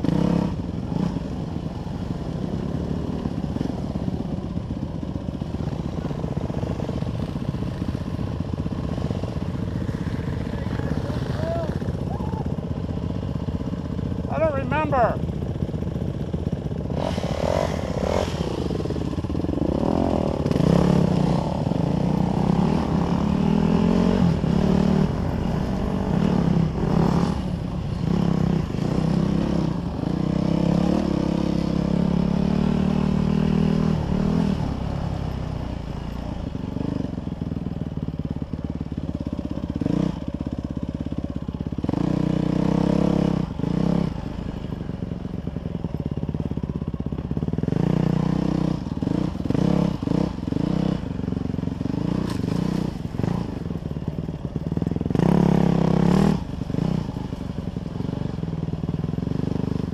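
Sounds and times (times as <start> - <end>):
dirt bike engine revving: 0.0 - 4.3, 16.8 - 37.2, 41.8 - 44.3, 47.4 - 53.9, 54.8 - 57.4.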